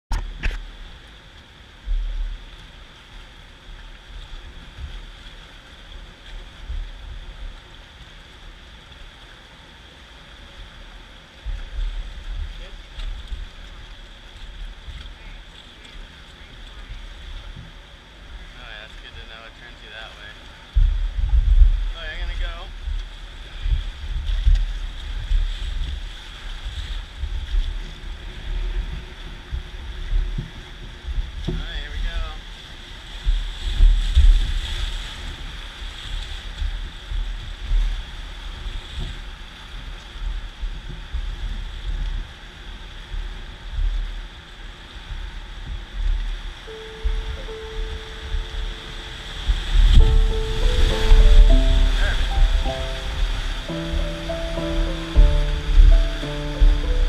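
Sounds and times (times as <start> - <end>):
wind buffeting microphone: 20.6 - 31.6, 32.4 - 57.0
river water rushing: 47.0 - 57.0.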